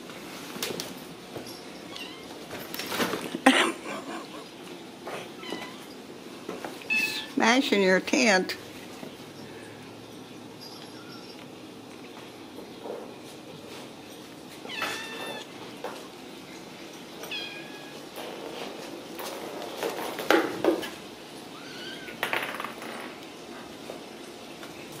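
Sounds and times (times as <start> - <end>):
kittens mewing: 14.7 - 15.5.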